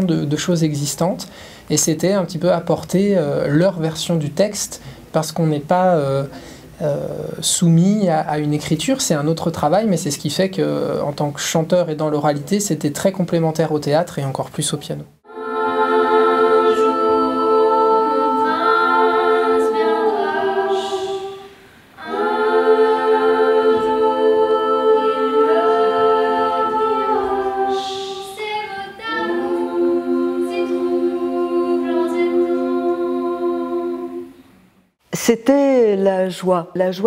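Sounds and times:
young singers singing a cappella: 0:15.2 - 0:34.8.

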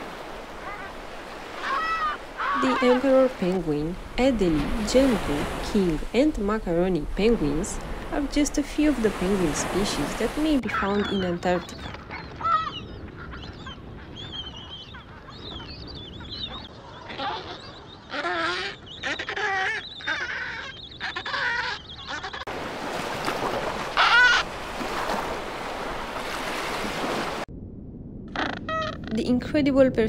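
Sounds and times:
penguins calling: 0:01.5 - 0:03.7, 0:08.9 - 0:22.4, 0:28.3 - 0:29.3.

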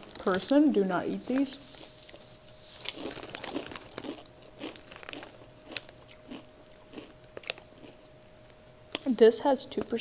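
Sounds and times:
crunching potato chips: 0:02.7 - 0:08.1.

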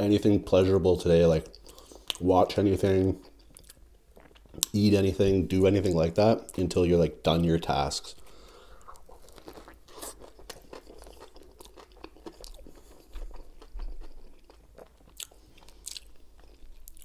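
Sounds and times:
person chewing with crunches: 0:03.1 - 0:04.8, 0:08.1 - 0:17.0.

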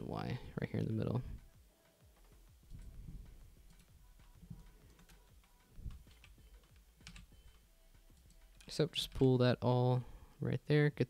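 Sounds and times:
soft low thumps: 0:01.2 - 0:07.6
keyboard keystrokes: 0:03.7 - 0:09.2.

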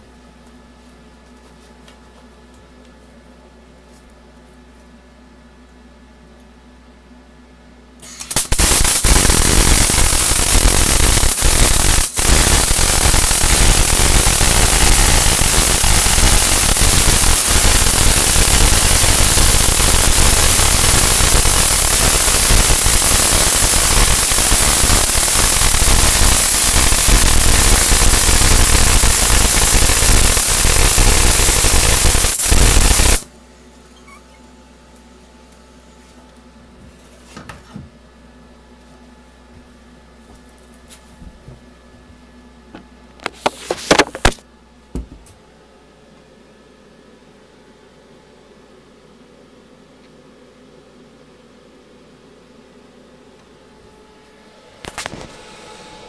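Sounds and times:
welding arc crackling: 0:08.0 - 0:33.3, 0:54.8 - 0:55.4.

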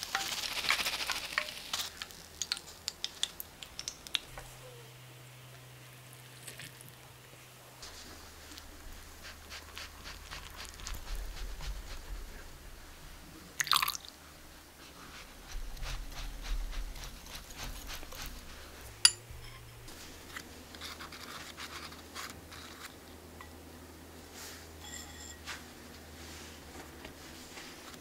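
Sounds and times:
metal clink on glass: 0:24.8 - 0:25.4.

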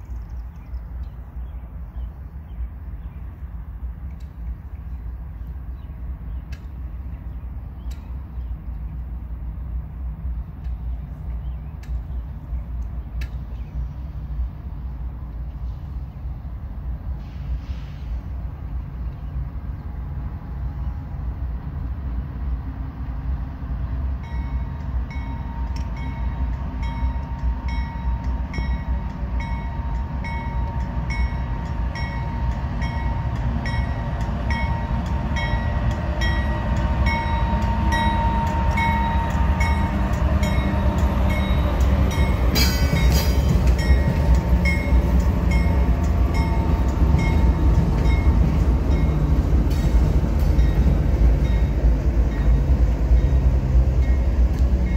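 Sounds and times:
freight train passing: 0:00.0 - 0:54.9
short hiss: 0:17.2 - 0:18.3.

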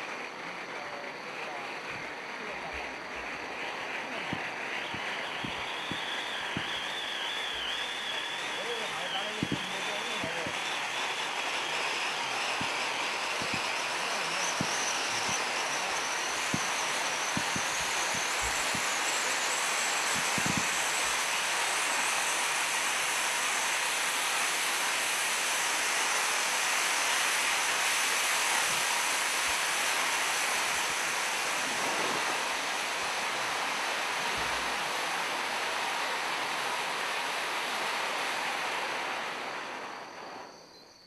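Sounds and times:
fountain firework hissing: 0:00.0 - 0:40.7.

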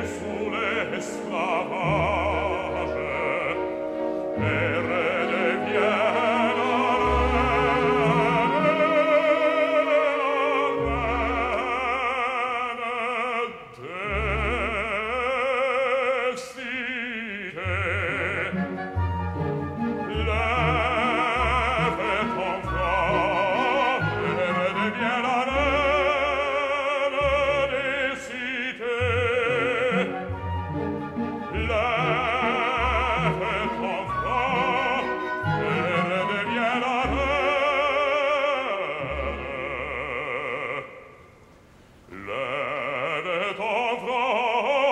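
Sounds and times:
orchestra playing: 0:00.0 - 0:12.7, 0:17.7 - 0:28.6, 0:29.2 - 0:40.2
operatic bass singing: 0:00.0 - 0:41.4, 0:42.1 - 0:44.9.

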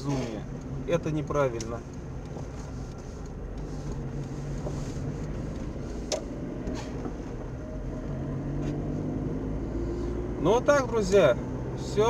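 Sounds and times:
car engine and road drone: 0:00.0 - 0:12.0.

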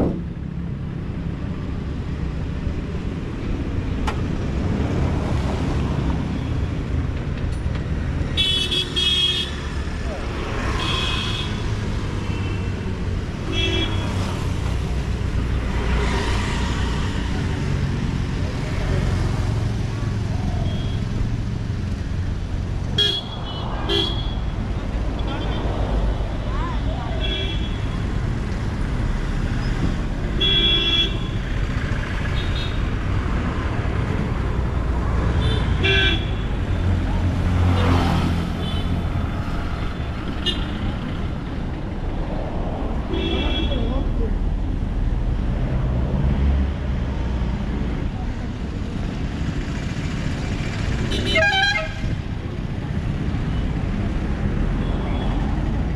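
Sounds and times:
rumble of traffic engines: 0:00.0 - 0:55.9
vehicle horns honking: 0:08.4 - 0:09.6, 0:10.8 - 0:11.7, 0:13.5 - 0:14.1, 0:22.9 - 0:24.4, 0:30.4 - 0:31.4, 0:35.4 - 0:36.5, 0:51.1 - 0:52.1
vehicle engines running: 0:31.1 - 0:55.9.

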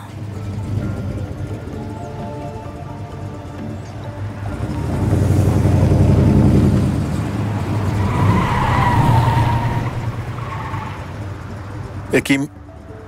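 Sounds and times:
car engine running loud: 0:00.0 - 0:12.2
tyres squealing: 0:01.8 - 0:12.2.

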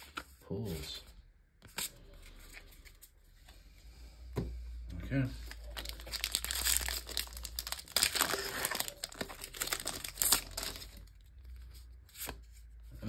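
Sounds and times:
foil wrapper tearing and crinkling: 0:05.7 - 0:11.1.

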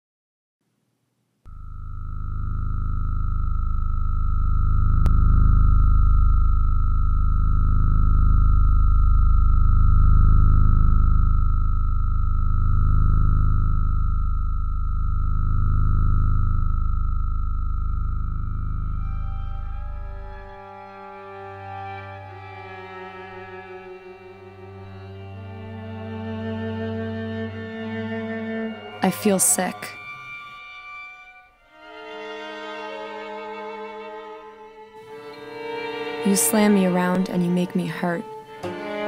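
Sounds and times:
deep low rumble: 0:01.5 - 0:20.6
high electronic tone: 0:01.5 - 0:25.4
low fast-pulsing drone: 0:01.5 - 0:30.5
sustained musical notes: 0:18.8 - 0:39.0.

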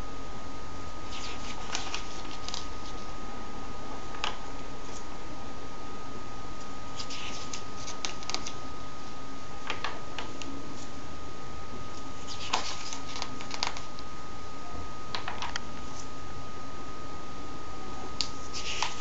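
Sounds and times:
steady high hum and hiss: 0:00.0 - 0:19.0
paper pages rustling: 0:01.1 - 0:03.1, 0:07.0 - 0:08.6, 0:12.2 - 0:13.9, 0:18.4 - 0:19.0.

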